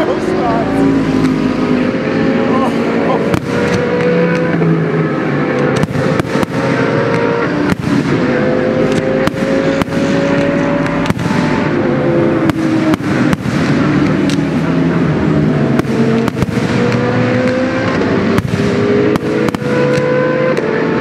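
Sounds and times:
race car engines: 0.0s - 21.0s
fireworks bursting: 3.2s - 4.4s, 5.8s - 7.0s, 7.6s - 8.3s, 10.8s - 11.7s, 12.4s - 14.5s, 15.8s - 20.1s.

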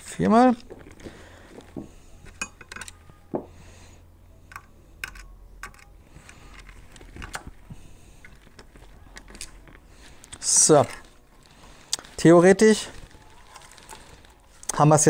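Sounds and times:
low steady hum: 0.0s - 14.8s
small parts clicking and tapping: 2.2s - 3.5s, 4.5s - 11.0s.

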